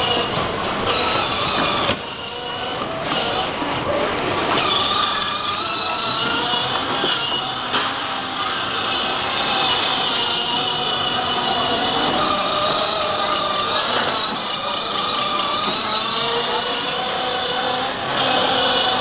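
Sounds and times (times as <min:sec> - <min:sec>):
electric toy car motor whine: 0:00.0 - 0:19.0
plastic wheels rattling on tiles: 0:09.5 - 0:17.8.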